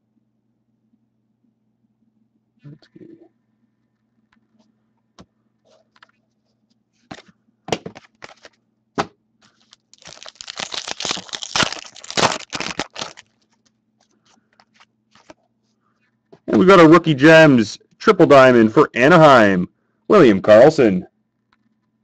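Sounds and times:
cards being handled: 7.0 - 8.6, 9.4 - 15.4
wrapper tearing and crinkling: 8.0 - 8.5, 9.5 - 13.7, 14.6 - 15.4.

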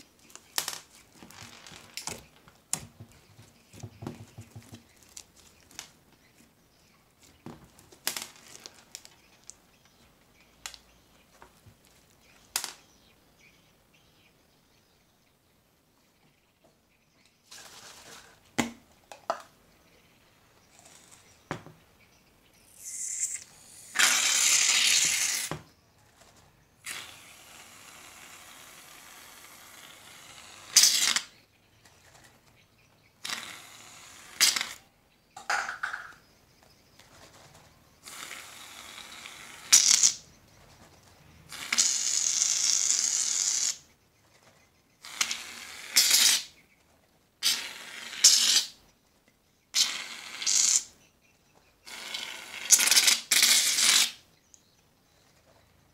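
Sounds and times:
aerosol can spraying: 22.8 - 25.6, 47.4 - 48.7.

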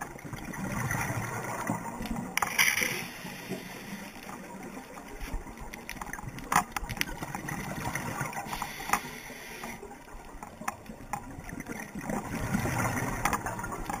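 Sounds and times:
regulator bubbles rumbling: 0.0 - 2.4, 10.0 - 14.0
underwater water hiss: 2.8 - 4.4, 8.0 - 10.0.

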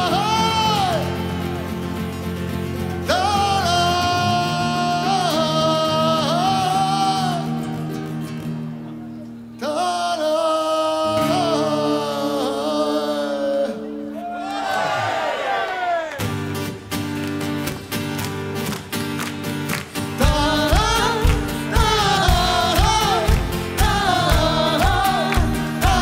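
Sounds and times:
man singing folk phrases: 0.0 - 1.8, 2.8 - 8.1, 9.6 - 14.3, 20.2 - 26.0.

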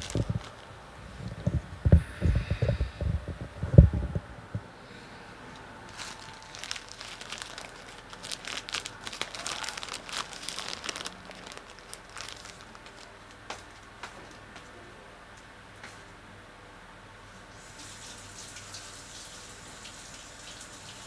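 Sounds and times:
plastic bag crinkling: 0.0 - 1.6, 5.9 - 13.9.

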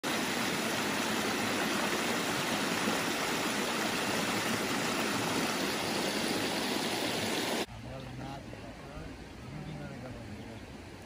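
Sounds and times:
stream rushing over rocks: 0.0 - 7.7.

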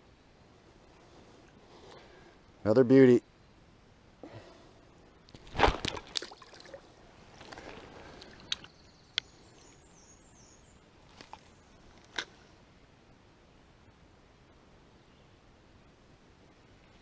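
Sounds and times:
fish splashing in water: 5.4 - 6.8.

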